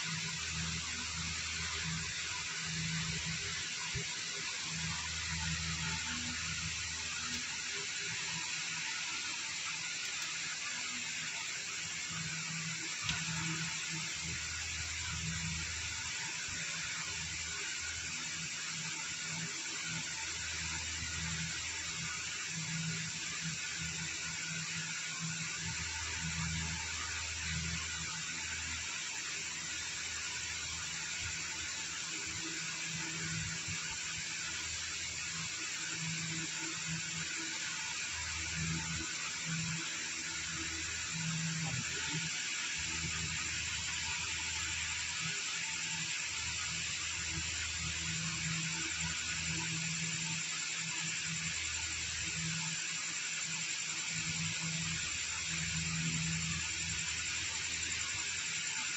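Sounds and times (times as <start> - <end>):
steady hiss: 0.0 - 58.9.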